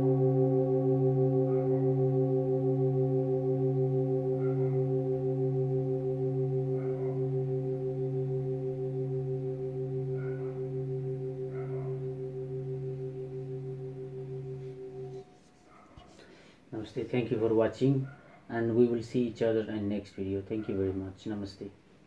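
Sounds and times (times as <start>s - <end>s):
singing bowl ringing: 0.0s - 15.6s.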